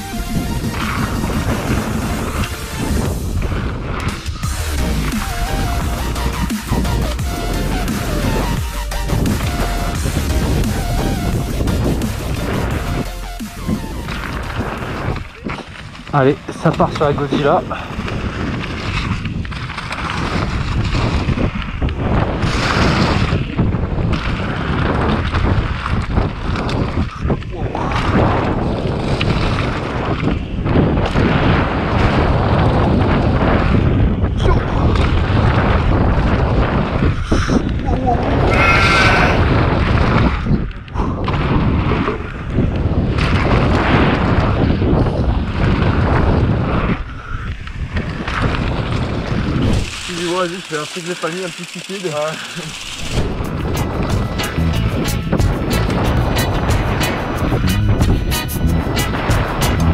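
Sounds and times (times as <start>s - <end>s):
wind rushing over microphone: 0.0s - 59.9s
tyre and ground rumble: 47.8s - 59.9s.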